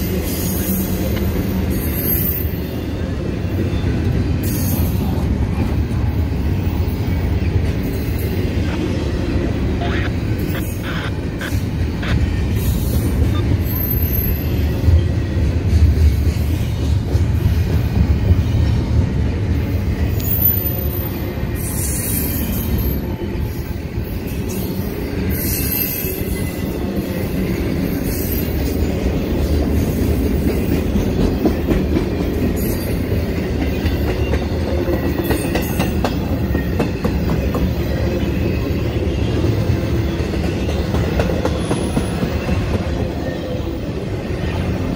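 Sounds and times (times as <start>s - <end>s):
train wheels rumbling on rail: 0.0s - 44.9s
high-pitched wheel squeals: 13.3s - 14.7s.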